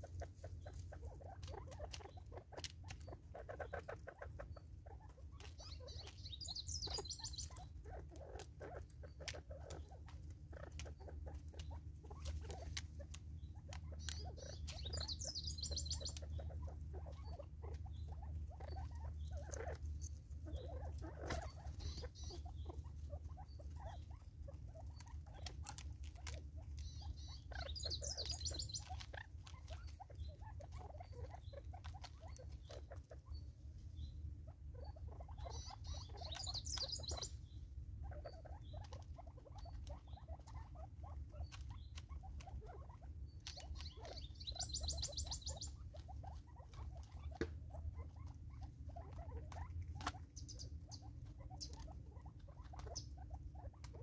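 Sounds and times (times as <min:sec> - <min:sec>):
birds pecking at plastic feeder: 0:00.0 - 0:33.3.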